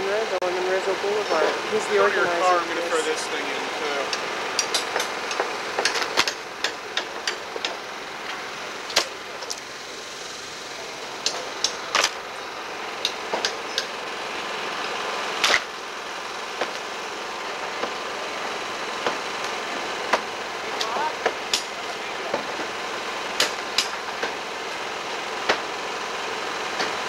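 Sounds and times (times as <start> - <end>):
hand tools striking wood: 4.1 - 7.8, 8.9 - 9.6, 13.0 - 13.9, 15.4 - 15.7, 16.6 - 16.9, 19.0 - 22.7, 23.4 - 24.4, 25.4 - 25.7.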